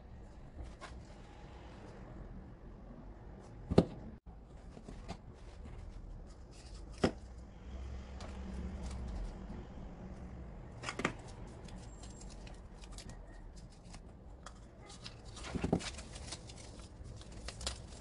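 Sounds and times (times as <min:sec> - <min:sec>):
plastic packaging rustling: 0:14.8 - 0:18.0.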